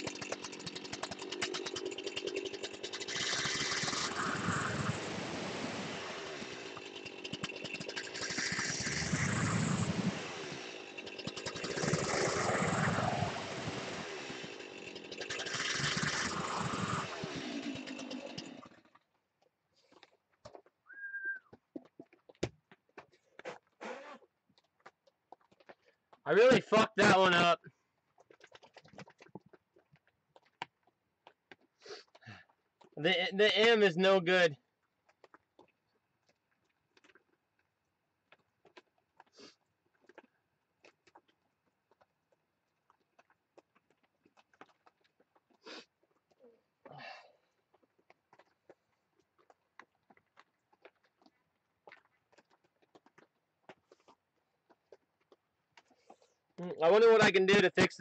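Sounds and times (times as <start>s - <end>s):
chainsaw cutting wood: 0.0s - 18.8s.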